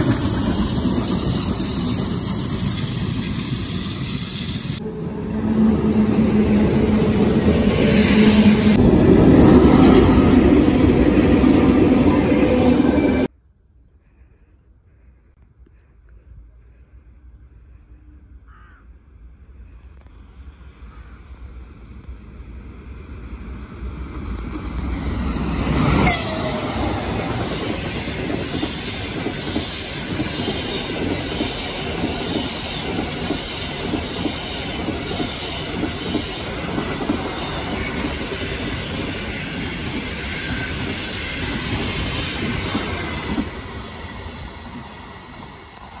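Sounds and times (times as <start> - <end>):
train wheels clickety-clack: 0.0 - 4.8, 24.1 - 46.0
locomotive rushing past: 0.0 - 13.3, 21.2 - 46.0.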